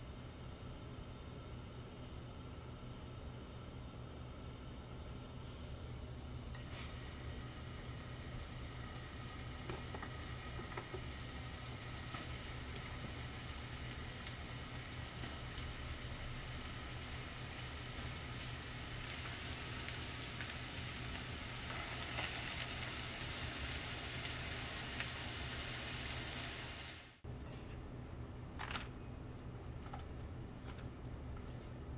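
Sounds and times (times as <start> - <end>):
low steady hum: 0.0 - 26.5, 27.2 - 31.9
deep-frying oil sizzling: 6.2 - 27.2.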